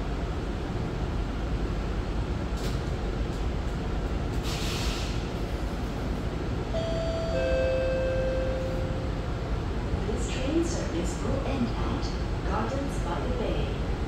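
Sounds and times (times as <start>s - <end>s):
metro train rumble: 0.0s - 14.0s
brief hiss: 4.4s - 5.3s
two-note chime: 6.8s - 9.1s.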